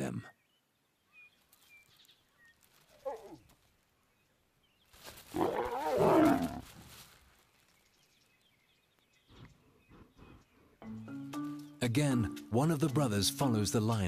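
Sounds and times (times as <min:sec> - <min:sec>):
lion snarling: 0:05.3 - 0:06.6.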